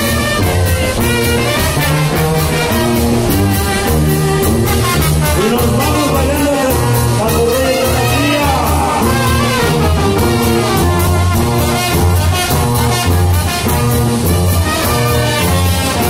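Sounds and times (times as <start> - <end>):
brass band playing dance music: 0.0 - 16.0
sousaphone bass notes: 0.0 - 16.0.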